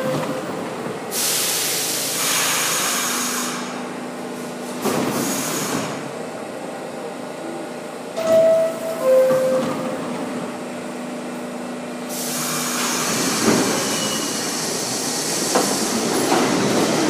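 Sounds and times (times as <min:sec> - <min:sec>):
subway car air hiss: 0:01.0 - 0:06.2, 0:12.0 - 0:17.0.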